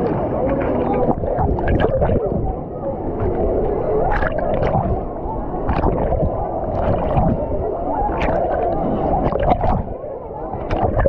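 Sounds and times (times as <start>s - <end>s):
muffled rumble: 0.0s - 11.0s
water sloshing and churning: 0.0s - 11.0s
sharp water splashes: 4.0s - 10.0s.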